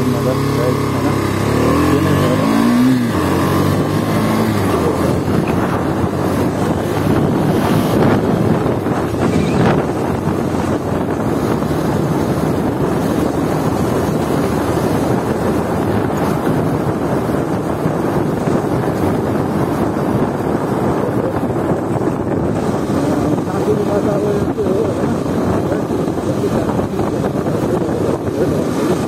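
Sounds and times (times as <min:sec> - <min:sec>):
motorcycle engine: 0:00.0 - 0:29.0
wind rush on microphone: 0:00.0 - 0:29.0.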